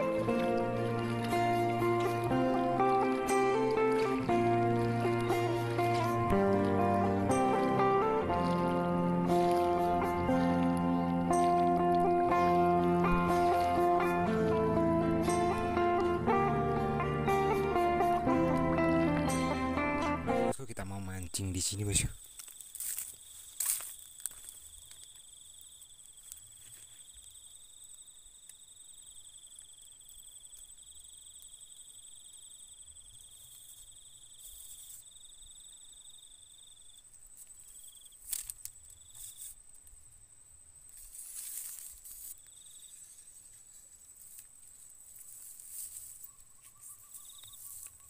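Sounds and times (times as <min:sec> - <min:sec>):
insects trilling: 0:00.0 - 0:19.6, 0:20.5 - 0:48.0
short rustling: 0:41.0 - 0:48.0.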